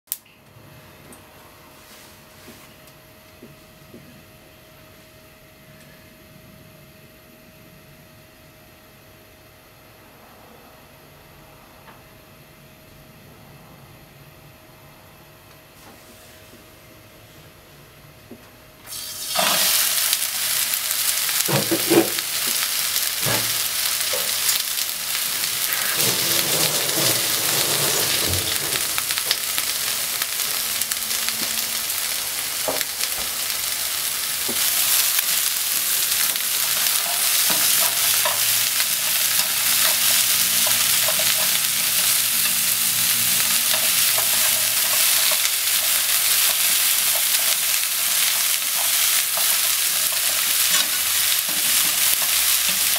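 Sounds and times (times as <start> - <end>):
cabbage sizzling in a frying pan: 18.9 - 52.9.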